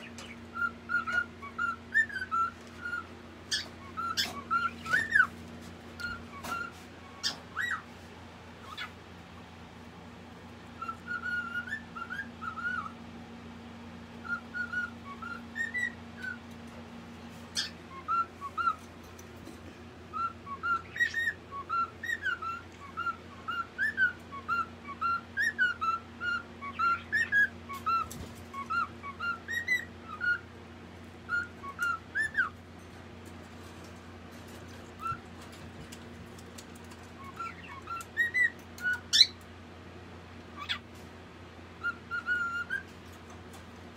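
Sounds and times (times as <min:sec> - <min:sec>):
parrot whistling chirps: 0:00.0 - 0:05.4, 0:06.0 - 0:07.9, 0:08.6 - 0:09.0, 0:10.7 - 0:13.0, 0:14.2 - 0:16.5, 0:17.5 - 0:18.9, 0:20.1 - 0:30.5, 0:31.2 - 0:32.6, 0:34.8 - 0:35.6, 0:37.2 - 0:39.4, 0:40.6 - 0:40.8, 0:41.8 - 0:42.9.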